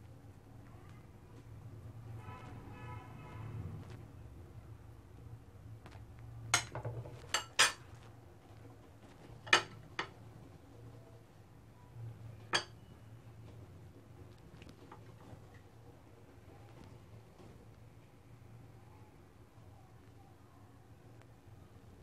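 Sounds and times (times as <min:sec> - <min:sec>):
spoon clinking on ceramic plate: 0:06.6 - 0:07.8, 0:09.5 - 0:10.1, 0:12.5 - 0:12.9.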